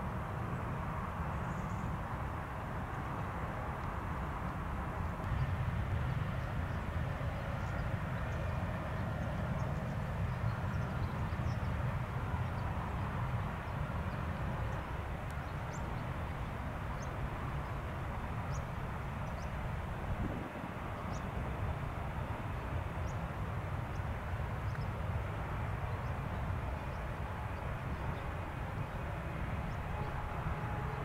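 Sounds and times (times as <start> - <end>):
steady low rumble: 19.3 - 30.7.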